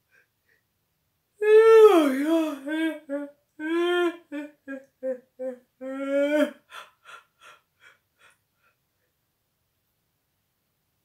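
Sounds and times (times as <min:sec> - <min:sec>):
woman yawning: 0:01.4 - 0:06.7.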